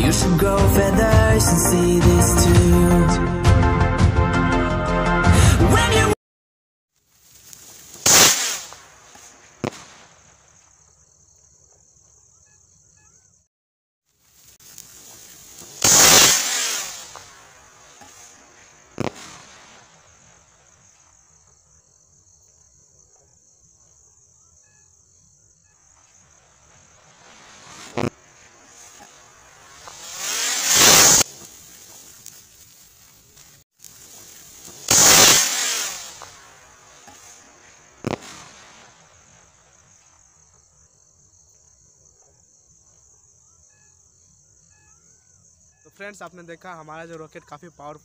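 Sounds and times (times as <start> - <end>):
firework rocket whoosh: 7.2 - 10.6, 14.4 - 21.2, 26.0 - 40.3
firework sharp crack: 7.2 - 11.0, 14.4 - 21.6, 25.9 - 40.7
faint high-pitched chirring: 11.1 - 13.4, 21.3 - 26.5, 43.2 - 46.0.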